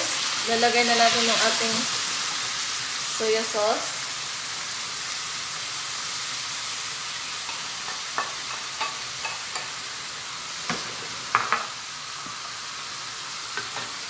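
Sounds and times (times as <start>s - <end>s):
livers sizzling in a wok: 0.0s - 14.0s
utensil knocking on pan: 10.7s - 11.7s.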